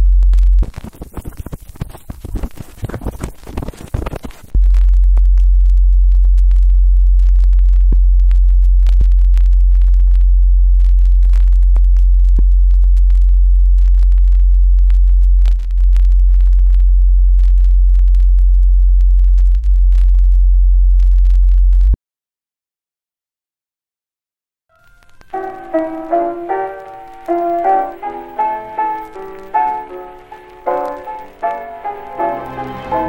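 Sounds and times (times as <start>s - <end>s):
crackling scratching noise: 0.0s - 22.0s, 24.7s - 33.0s
deep electronic drone: 4.6s - 22.0s.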